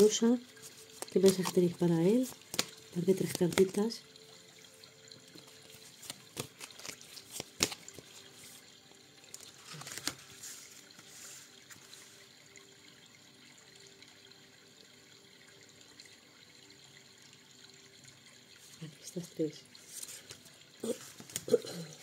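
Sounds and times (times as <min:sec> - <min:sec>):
cards rustling and sliding: 0:00.6 - 0:03.8, 0:05.4 - 0:08.6, 0:09.3 - 0:12.2, 0:21.0 - 0:21.5
cards tapping on table: 0:06.1 - 0:08.1.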